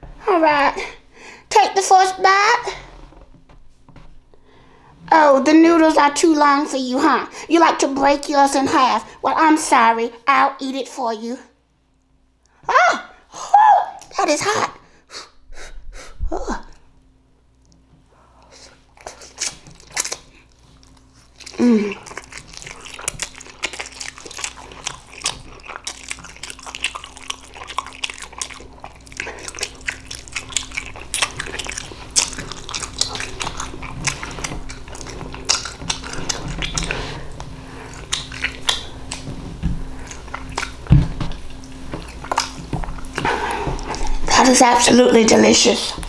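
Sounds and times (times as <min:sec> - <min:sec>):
wet chewing: 0:18.4 - 0:46.0
noodle slurping: 0:18.5 - 0:40.8
mouth smacks and clicks: 0:21.4 - 0:39.4, 0:40.0 - 0:44.2.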